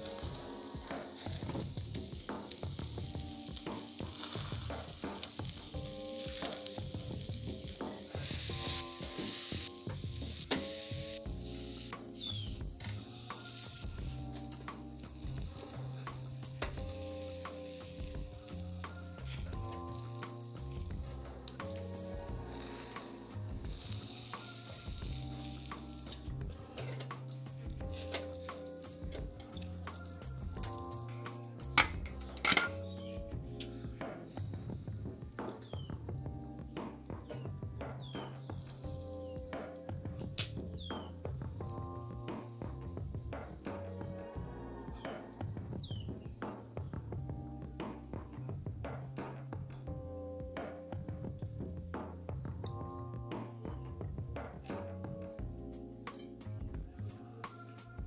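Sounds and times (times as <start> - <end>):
meat sizzling over charcoal: 0.0 - 48.2
background music with held notes: 0.0 - 58.0
metal tongs clicking: 31.8 - 32.8.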